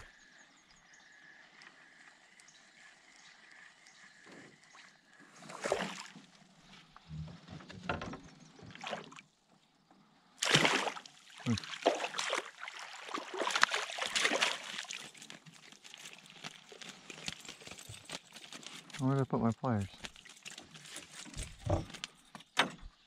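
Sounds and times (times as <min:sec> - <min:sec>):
water splashing at canoe: 0:05.4 - 0:06.3, 0:08.6 - 0:09.3, 0:10.4 - 0:18.8
knocks and rattles: 0:21.1 - 0:23.0.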